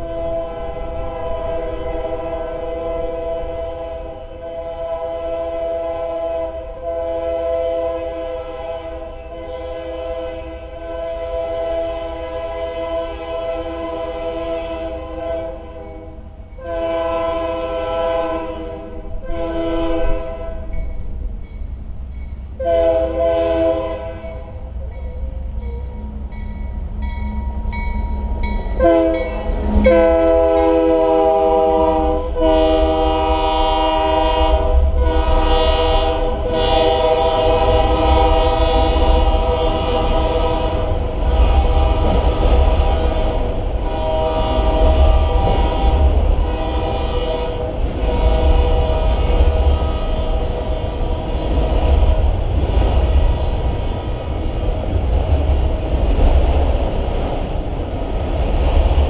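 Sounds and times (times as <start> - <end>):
locomotive air horn: 0.0 - 20.8, 22.6 - 24.7, 28.8 - 51.3
passing train rumble: 0.0 - 59.0.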